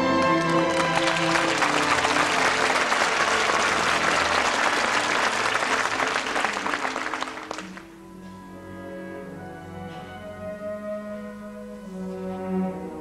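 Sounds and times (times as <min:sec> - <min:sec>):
audience applauding: 0:00.0 - 0:08.0
orchestra holding a chord: 0:00.0 - 0:08.6.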